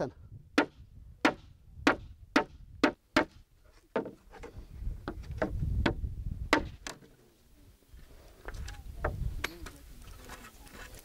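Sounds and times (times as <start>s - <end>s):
axe chopping wood: 0.6s - 3.4s, 6.5s - 7.0s.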